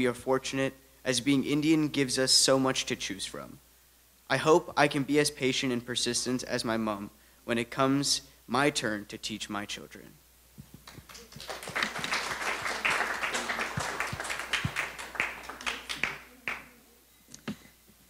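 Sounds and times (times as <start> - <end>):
audience applauding: 10.8 - 16.7.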